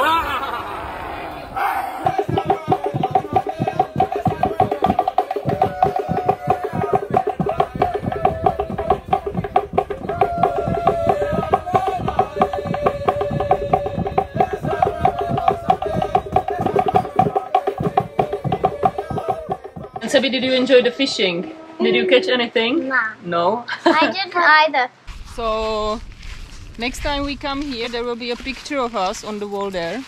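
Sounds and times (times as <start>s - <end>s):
group chanting: 0.0s - 20.9s
fast percussion clicks: 2.0s - 20.4s.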